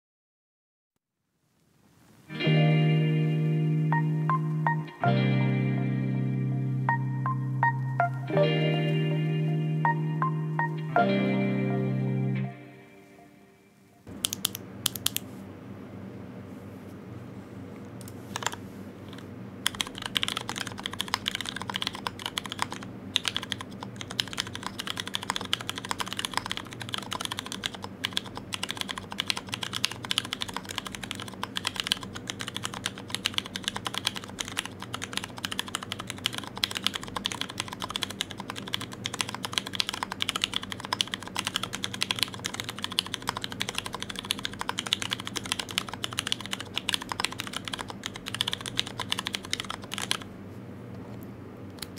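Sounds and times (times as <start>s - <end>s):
mechanical keyboard typing: 14.2s - 15.2s, 18.3s - 50.2s.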